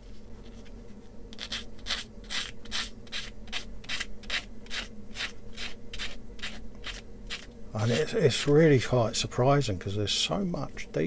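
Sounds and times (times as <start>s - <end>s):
sanding stick rubbing plastic: 1.4s - 7.5s.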